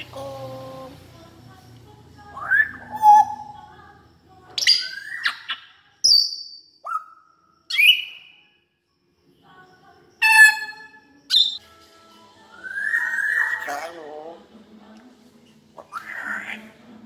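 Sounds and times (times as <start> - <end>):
parrot whistles and calls: 4.6 - 8.4, 10.2 - 11.6, 12.5 - 13.9.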